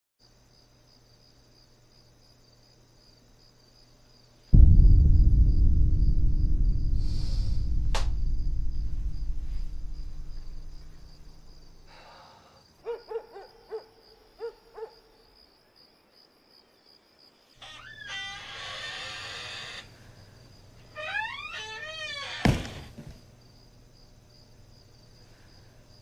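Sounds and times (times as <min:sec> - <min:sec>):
low rumbling drone: 0:04.6 - 0:11.9.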